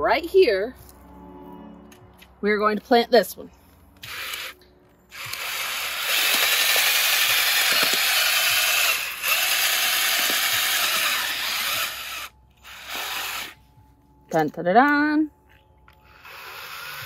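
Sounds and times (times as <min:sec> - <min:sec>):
cordless drill boring into soil: 0:04.0 - 0:13.6, 0:16.1 - 0:17.0.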